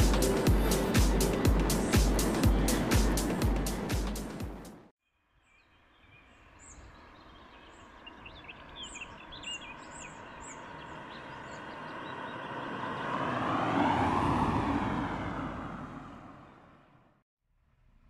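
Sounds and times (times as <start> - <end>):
small birds chirping: 5.3 - 13.0
car passing: 7.5 - 17.2.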